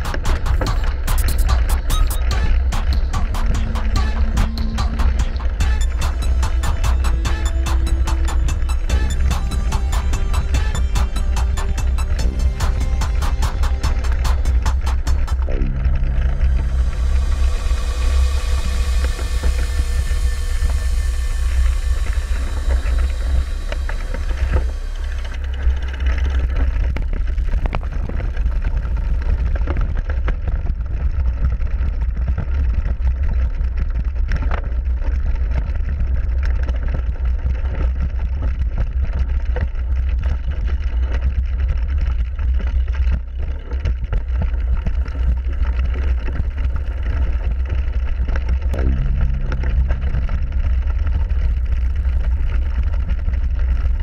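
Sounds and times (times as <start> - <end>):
short low hum: 1.4 - 29.7, 48.7 - 54.0.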